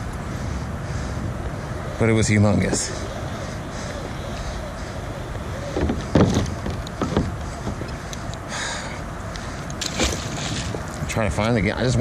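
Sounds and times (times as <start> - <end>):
rushing water and wind: 0.0 - 12.0
magnet splashing into river: 9.8 - 10.8.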